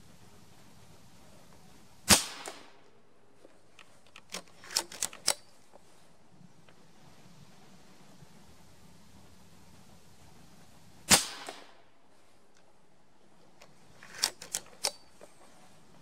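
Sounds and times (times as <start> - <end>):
air rifle firing crack: 2.1 - 2.9, 11.1 - 11.8
rifle lever clicks: 3.7 - 5.6, 13.6 - 15.3.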